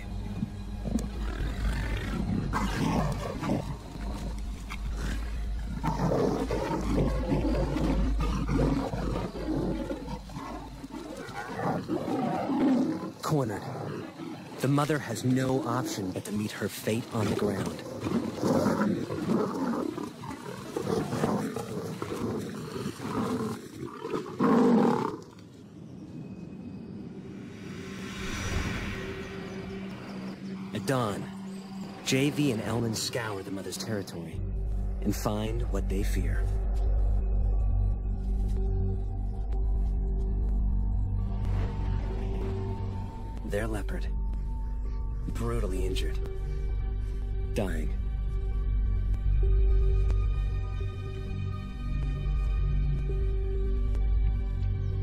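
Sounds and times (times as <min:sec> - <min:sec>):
big cat snarling: 0:00.8 - 0:16.3, 0:17.0 - 0:25.4.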